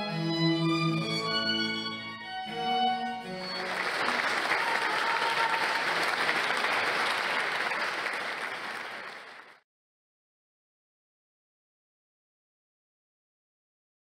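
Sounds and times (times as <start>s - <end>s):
violins playing: 0.0s - 5.6s
audience clapping: 3.3s - 9.6s.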